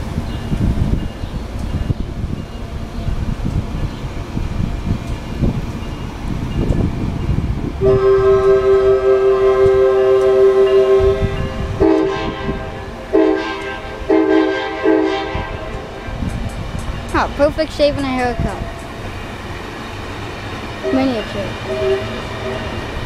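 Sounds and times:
train cars rumbling past: 0.0 - 23.0
train horn blasts: 7.8 - 16.1, 20.8 - 23.0.

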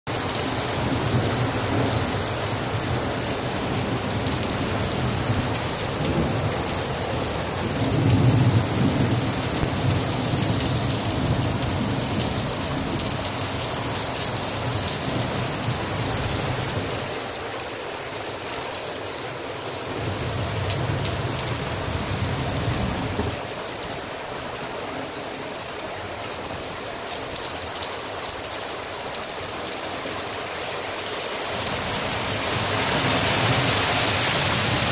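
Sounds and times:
heavy rain on street and cars: 0.1 - 34.9
thunder rumbles: 0.5 - 13.3.

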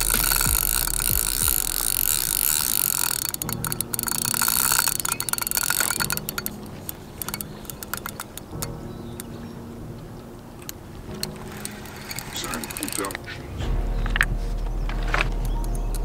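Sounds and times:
fishing reel ratchet clicking: 0.0 - 8.7, 11.2 - 13.2.

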